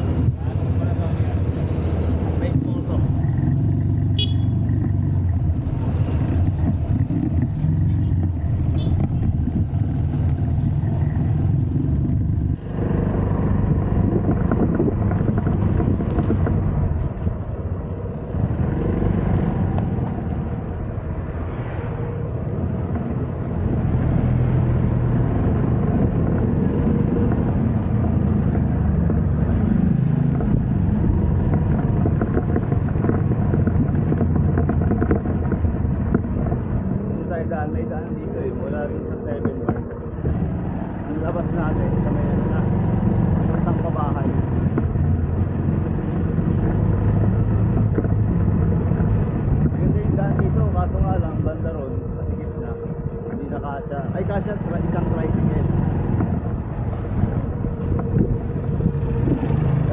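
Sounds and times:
moped engine running: 3.0s - 16.6s.

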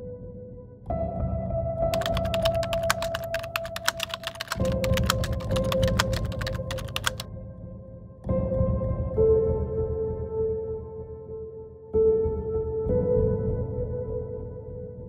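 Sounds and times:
keyboard typing clicks: 2.0s - 7.2s.

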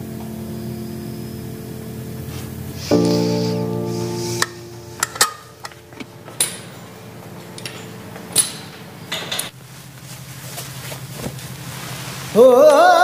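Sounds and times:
low steady hum: 0.0s - 10.3s.

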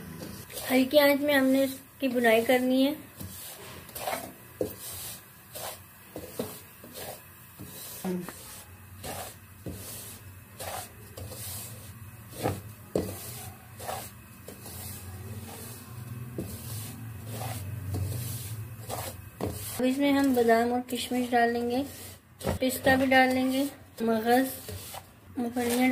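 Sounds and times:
spatula scraping in a pan: 0.0s - 25.9s.

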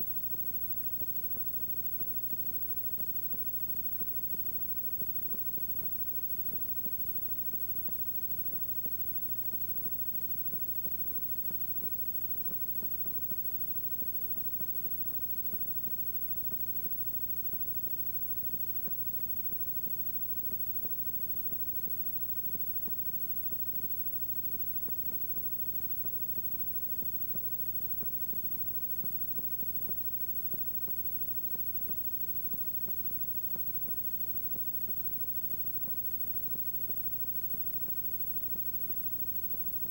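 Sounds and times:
tape hiss: 0.0s - 39.9s.

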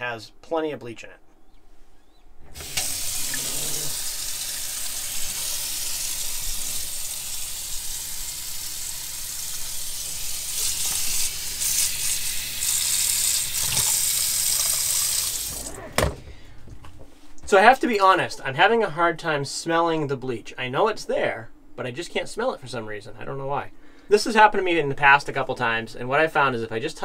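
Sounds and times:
water pump humming: 2.4s - 16.2s
faucet water spattering in steel sink: 4.1s - 15.7s.

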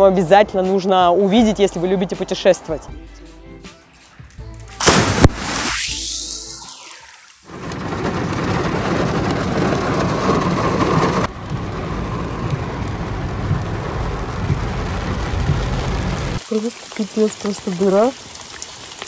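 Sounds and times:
heavy rain in wind: 7.5s - 19.0s.

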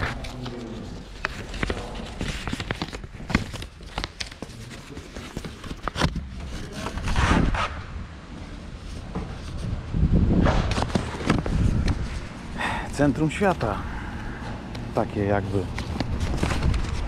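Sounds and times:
low station ambience rumble: 11.0s - 17.0s.

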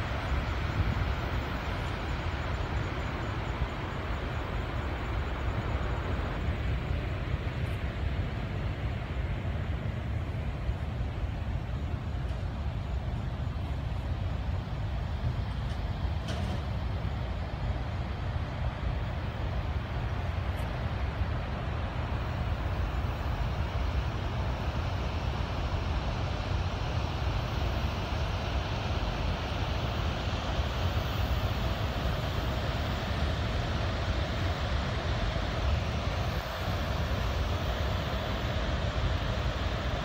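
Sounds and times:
rushing water roar: 16.8s - 40.0s.

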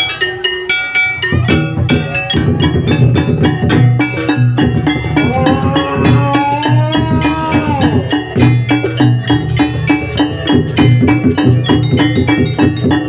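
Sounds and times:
wooden xylophones struck with mallets: 0.0s - 13.0s
heavy drum beat: 1.5s - 13.0s
held gliding melody line: 4.8s - 8.8s.

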